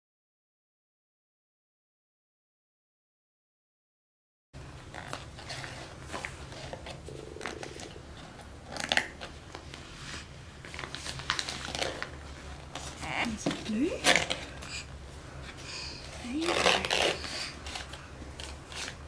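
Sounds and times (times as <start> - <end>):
low steady room hum: 4.6 - 19.0
hands tapping and rustling paper: 8.7 - 14.7.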